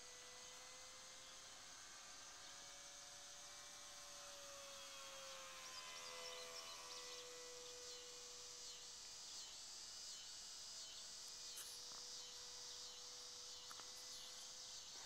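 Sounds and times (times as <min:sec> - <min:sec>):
constant high hiss: 0:00.0 - 0:15.0
model plane motor whine: 0:00.0 - 0:15.0
insects chirping: 0:05.0 - 0:15.0.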